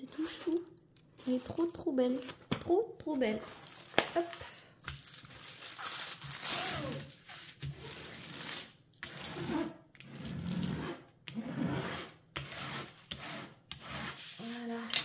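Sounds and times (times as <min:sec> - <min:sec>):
plastic film crinkling: 0:00.0 - 0:02.5, 0:03.2 - 0:08.8
palm rubbing on plastic film: 0:05.8 - 0:09.8.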